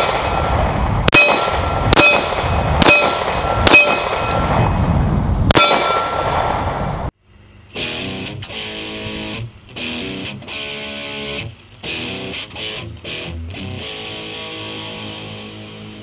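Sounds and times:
guitar strummed chords: 7.7s - 16.0s.

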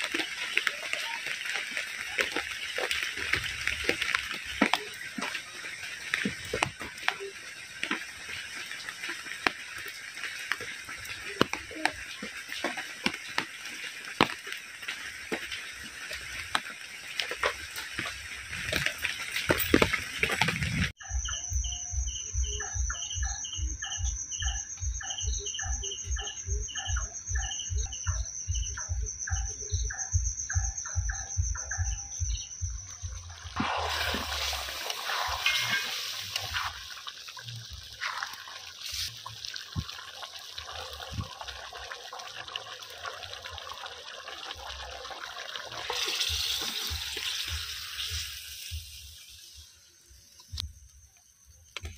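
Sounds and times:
heavy rain falling: 0.0s - 21.0s, 33.2s - 48.2s
rhythmic pulsing sound: 0.0s - 39.9s.

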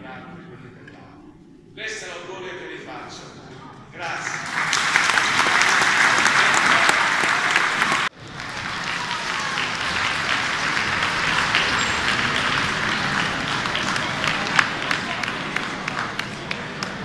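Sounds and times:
crowd noise: 3.5s - 17.0s
audience applauding: 4.0s - 17.0s.

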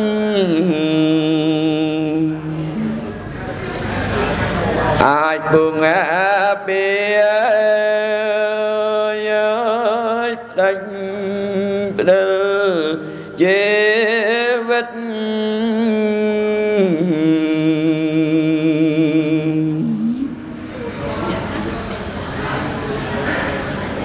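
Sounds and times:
man chanting into a microphone: 0.0s - 3.0s, 5.0s - 20.4s.

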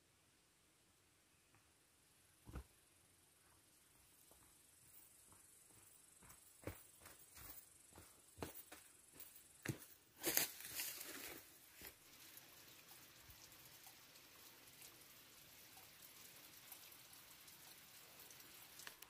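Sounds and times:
rustling crunch in undergrowth: 6.6s - 12.0s
water trickling and dripping: 10.3s - 19.0s.

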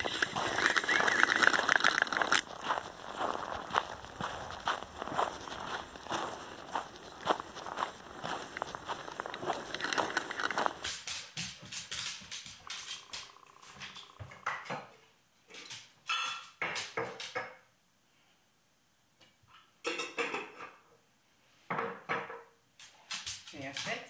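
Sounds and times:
footsteps crunching in snow: 0.0s - 10.9s
dishes and utensils clattering: 16.1s - 17.4s, 19.9s - 20.8s.

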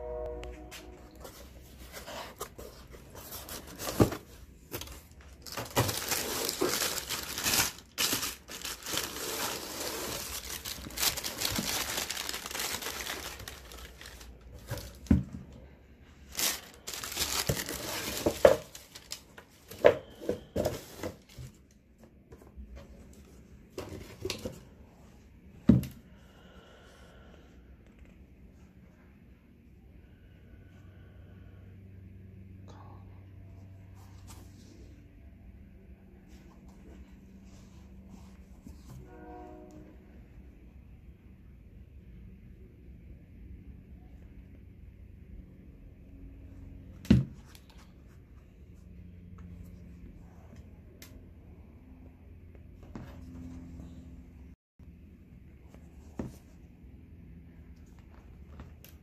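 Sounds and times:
paper crinkling and rustling: 1.2s - 15.3s, 16.3s - 21.7s.

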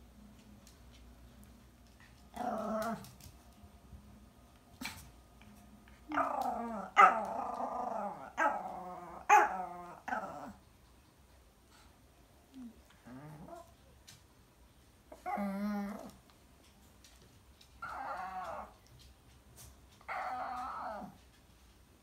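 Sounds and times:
dog growling and whining: 2.3s - 3.2s, 6.0s - 10.6s, 12.5s - 13.7s, 15.1s - 16.2s, 17.8s - 18.8s, 20.0s - 21.2s.

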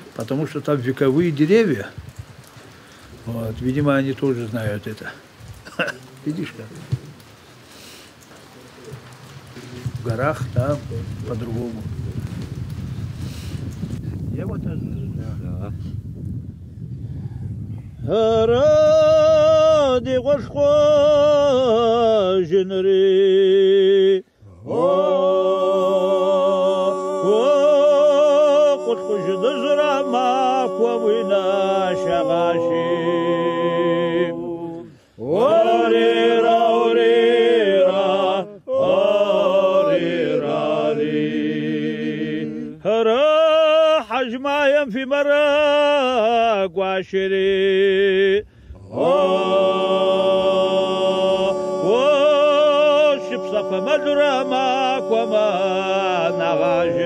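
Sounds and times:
men singing unaccompanied: 18.0s - 57.0s.

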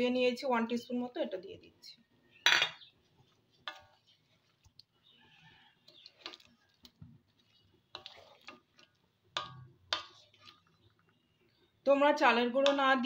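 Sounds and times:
spatula knocking and scraping pan: 3.5s - 4.3s, 5.8s - 10.7s, 12.6s - 13.0s.

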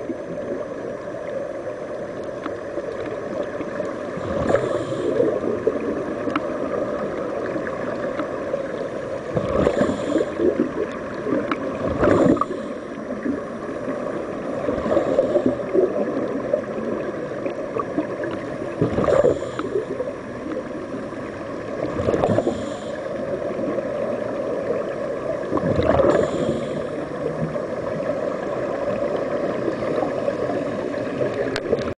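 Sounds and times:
air bubbling underwater: 25.5s - 26.7s.

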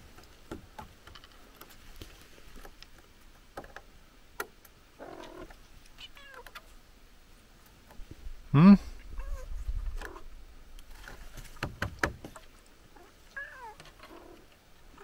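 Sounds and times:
cat meowing faintly: 9.0s - 10.2s.

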